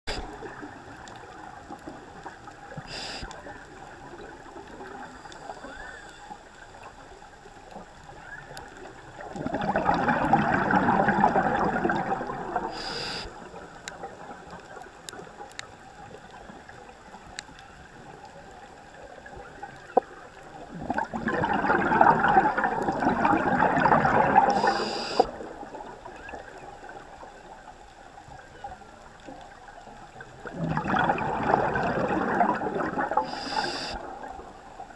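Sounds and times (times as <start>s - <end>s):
regulator bubbles gurgling: 0.1s - 5.8s, 6.8s - 17.2s, 17.9s - 34.9s
faint whale song: 0.1s - 34.9s
inhalation hiss: 2.8s - 3.3s, 12.7s - 13.4s, 24.5s - 25.4s, 33.2s - 34.1s.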